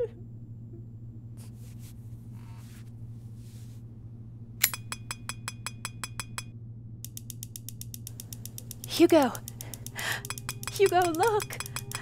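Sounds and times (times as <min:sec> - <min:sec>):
low steady hum: 0:00.0 - 0:12.0
sharp mechanical clicks: 0:07.0 - 0:12.0.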